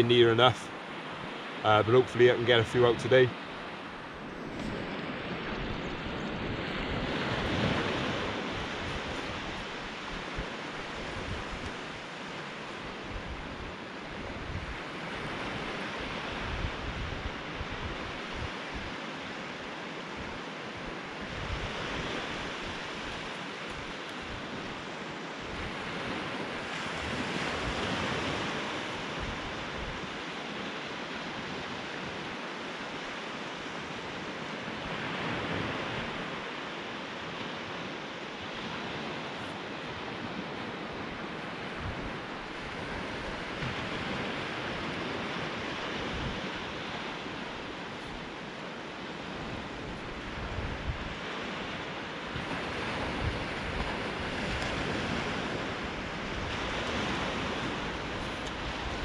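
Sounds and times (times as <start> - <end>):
surf washing over sandy beach: 0.0 - 59.0
wind buffeting microphone: 3.8 - 19.0, 20.2 - 24.8, 39.8 - 48.5, 49.2 - 59.0.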